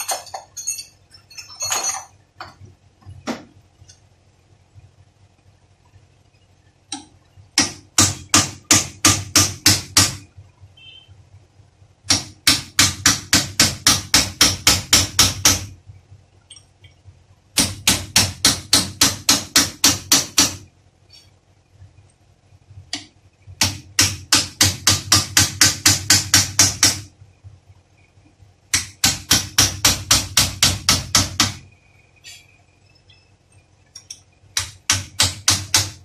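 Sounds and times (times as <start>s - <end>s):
hammer striking metal punch: 17.6s - 20.6s, 23.6s - 27.1s.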